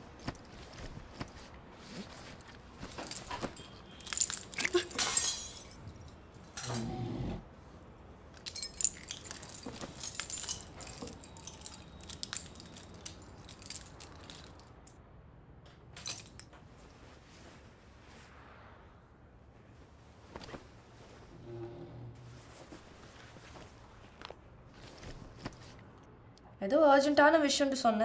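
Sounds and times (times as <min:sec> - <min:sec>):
keys jangling: 0:00.1 - 0:06.8, 0:08.4 - 0:14.9, 0:16.0 - 0:16.6.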